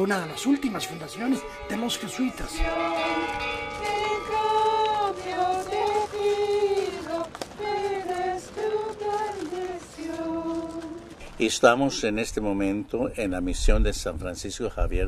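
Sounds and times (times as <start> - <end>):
voices singing a hymn: 0.0 - 12.0.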